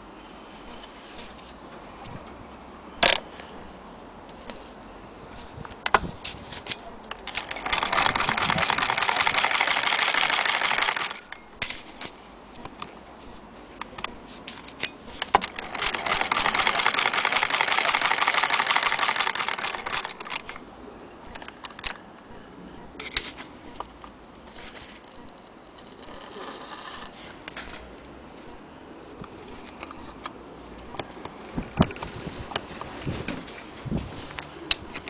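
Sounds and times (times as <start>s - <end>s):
sewing machine clattering: 7.2s - 11.2s, 15.4s - 20.5s.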